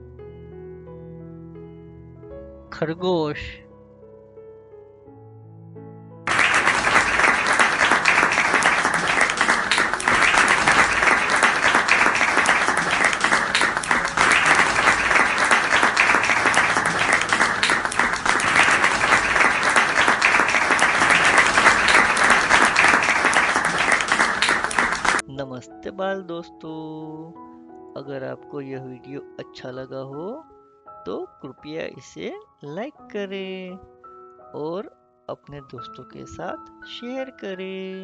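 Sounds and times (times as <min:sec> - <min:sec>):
soft music: 0:00.0 - 0:38.0
crowd applause: 0:06.3 - 0:25.2.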